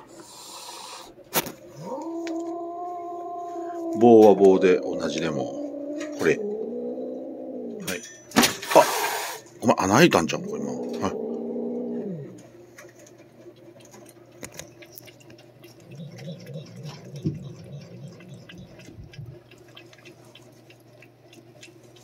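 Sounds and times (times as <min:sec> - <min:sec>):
cat growling: 0:01.7 - 0:08.0, 0:10.2 - 0:12.5, 0:15.7 - 0:19.9
cat licking clicks: 0:12.3 - 0:22.0.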